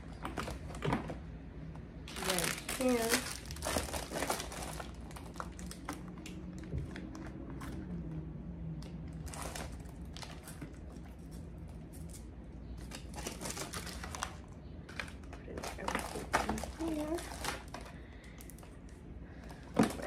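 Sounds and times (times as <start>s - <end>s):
plastic rustling: 2.0s - 7.8s, 9.2s - 18.8s.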